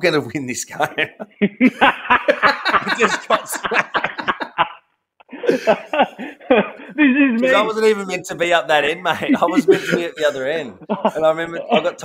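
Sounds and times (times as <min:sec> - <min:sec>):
men laughing hard: 0:00.9 - 0:07.3, 0:09.1 - 0:12.0.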